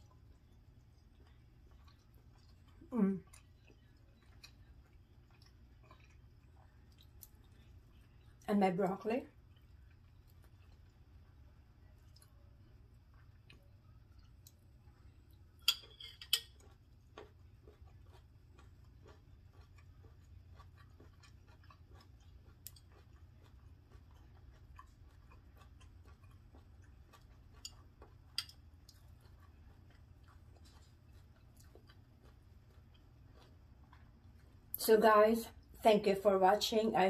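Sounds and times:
faint chewing: 0.0s - 34.9s
fork clinking on ceramic plate: 15.6s - 16.6s.

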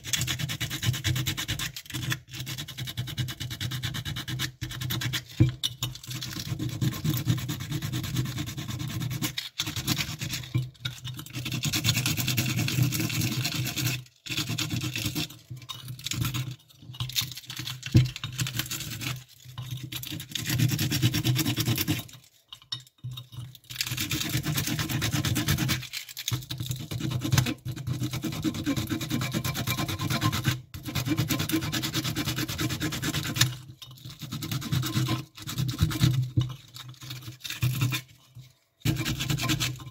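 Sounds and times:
sponge scrubbing metal part: 27.1s - 39.9s.

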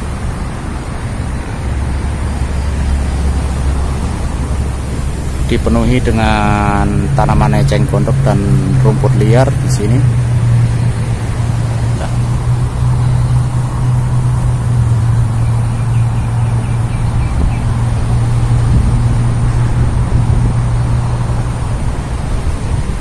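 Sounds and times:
low hum: 0.0s - 23.0s
road traffic drone: 0.0s - 23.0s.

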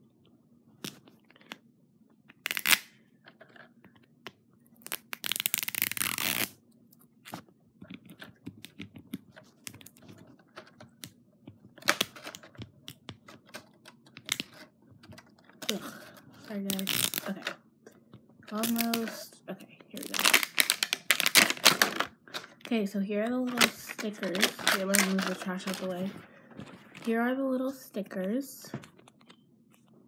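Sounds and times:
wrapping ripping: 2.5s - 2.9s, 4.8s - 6.6s, 16.6s - 17.4s, 20.0s - 21.9s
wrapping crinkling and scratching: 4.7s - 6.6s, 7.2s - 17.5s, 18.5s - 19.3s, 19.9s - 27.2s.

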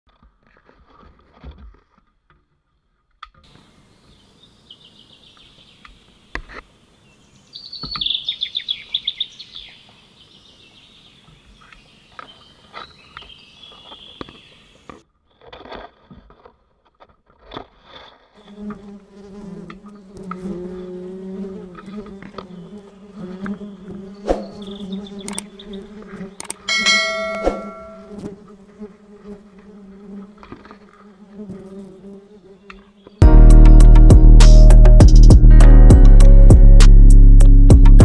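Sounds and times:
honeybees buzzing: 18.4s - 33.2s
high chirping trills: 23.7s - 28.2s.

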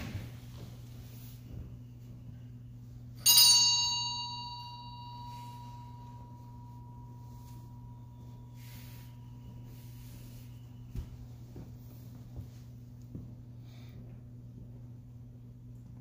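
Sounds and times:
small bell ringing: 3.2s - 9.8s.

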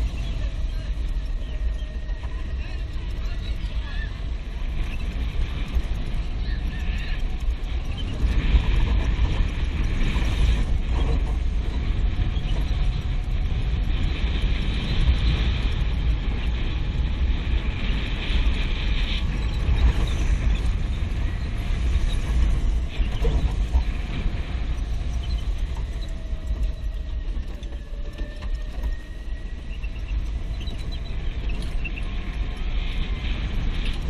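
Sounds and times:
go-kart engine running: 0.0s - 34.0s
wind buffeting the microphone: 0.0s - 34.0s.

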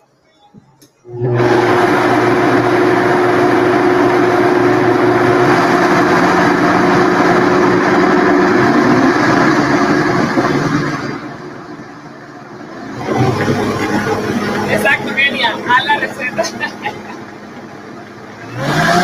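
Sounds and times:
blender motor whine: 1.0s - 11.8s, 12.6s - 15.8s, 16.7s - 19.0s.

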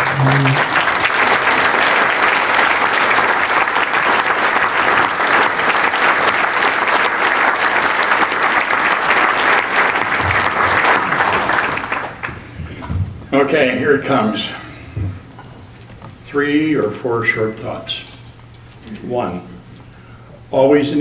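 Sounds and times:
audience applauding: 0.0s - 12.8s.

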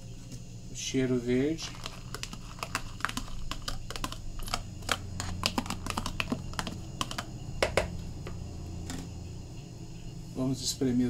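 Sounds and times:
metal spoon tapping plastic container: 1.6s - 7.9s.

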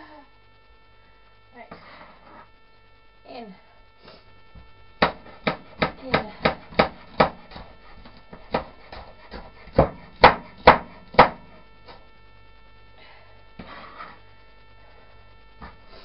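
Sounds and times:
knife chopping on plastic board: 5.0s - 7.7s, 8.3s - 11.4s.

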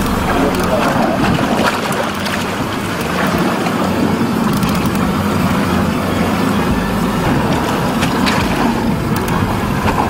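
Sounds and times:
boat engine humming: 0.0s - 10.0s.

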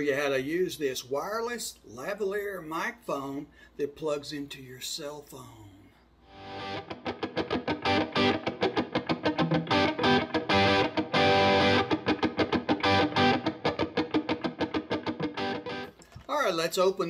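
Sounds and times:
distorted electric guitar music: 6.3s - 16.0s.

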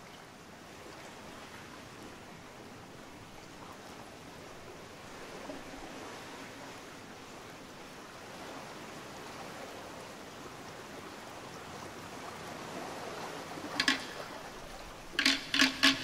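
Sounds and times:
sharp percussive knocks: 13.8s - 14.3s, 15.1s - 16.0s.

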